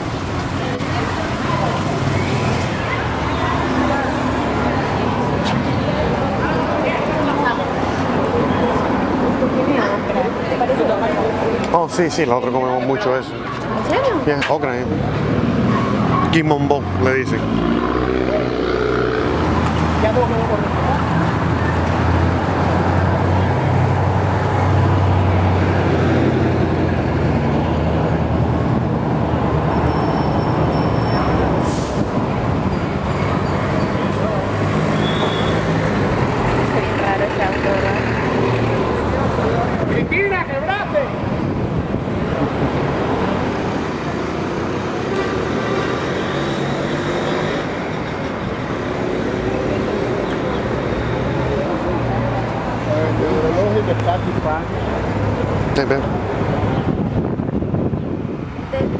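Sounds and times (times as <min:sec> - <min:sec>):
street traffic noise: 0:00.0 - 0:58.9.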